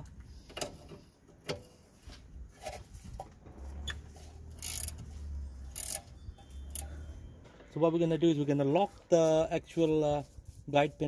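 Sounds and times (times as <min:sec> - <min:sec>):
spanner ratcheting: 0:04.5 - 0:05.0, 0:05.7 - 0:06.1.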